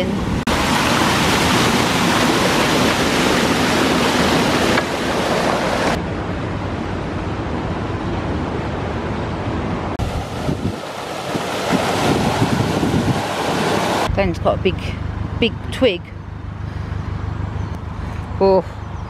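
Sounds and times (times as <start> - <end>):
water gushing through lock gate: 0.4 - 6.0, 10.0 - 14.1.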